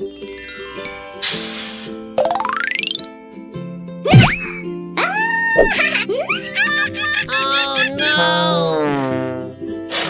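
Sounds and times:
cartoon background music: 0.0 - 10.0.

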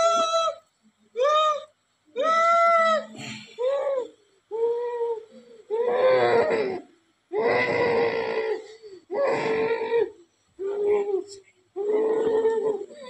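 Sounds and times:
woman wailing: 11.8 - 13.0.

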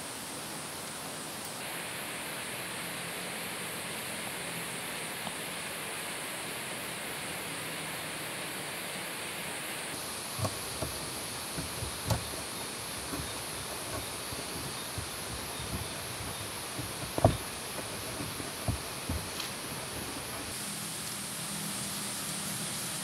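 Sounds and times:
steady outdoor hiss: 0.0 - 23.0
bamboo poles knocking: 10.0 - 20.6.

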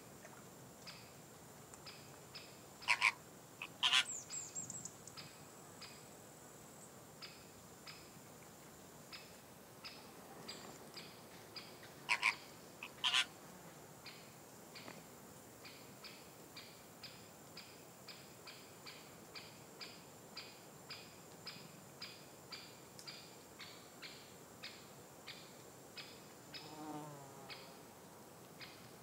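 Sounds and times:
flamingos honking: 2.8 - 4.1, 12.1 - 13.3.

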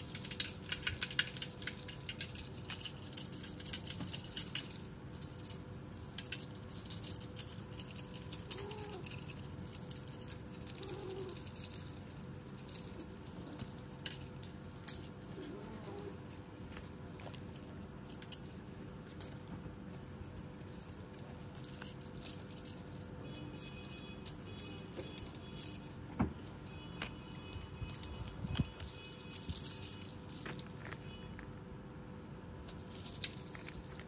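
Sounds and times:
faint steady hum: 0.0 - 34.0
kittens scampering on dirt and leaves: 7.7 - 19.2, 19.8 - 31.4.

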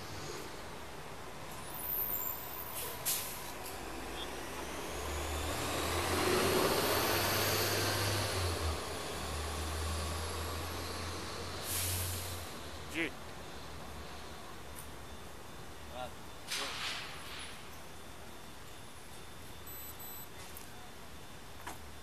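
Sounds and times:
vehicle passing: 3.8 - 11.6
short hisses: 11.6 - 12.4.

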